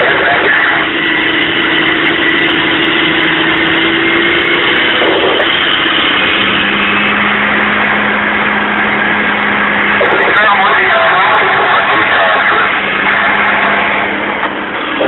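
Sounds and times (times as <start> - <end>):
truck diesel engine from cab: 0.0 - 15.0.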